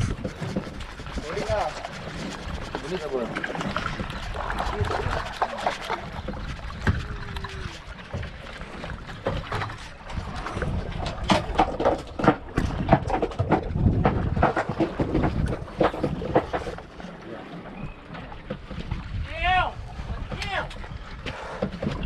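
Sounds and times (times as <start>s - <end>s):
low wind rumble: 0.0s - 22.0s
water noise around boat: 0.0s - 22.0s
sharp knocks and clatters: 10.9s - 16.9s.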